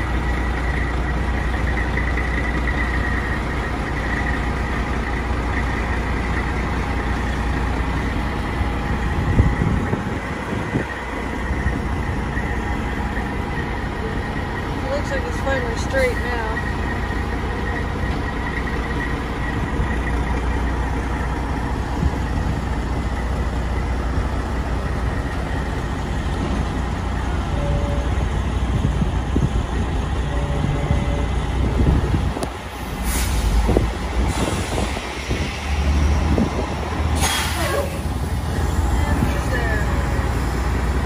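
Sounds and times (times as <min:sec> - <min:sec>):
diesel truck engine at low revs: 0:00.0 - 0:41.0
air brake hisses: 0:32.9 - 0:35.1, 0:37.2 - 0:38.2.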